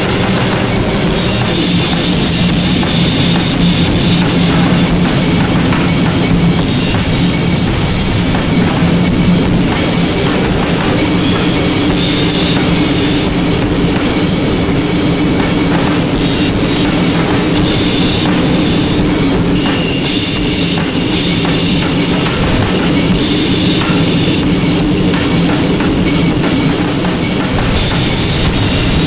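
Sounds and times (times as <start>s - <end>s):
harsh crackling noise music: 0.0s - 29.0s
steady low drone: 0.0s - 29.0s.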